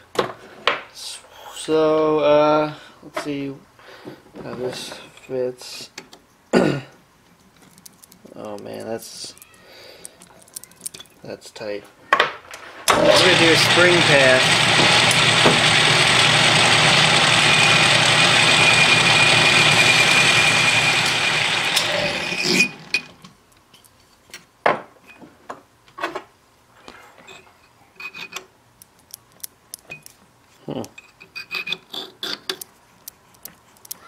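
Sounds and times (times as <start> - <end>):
lathe running with high whine: 12.9 - 23.2
metal clicks and taps: 28.8 - 30.2, 32.2 - 34.0.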